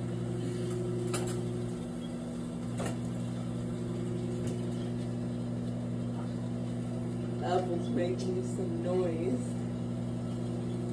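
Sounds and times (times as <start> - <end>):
microwave oven humming: 0.0 - 10.9.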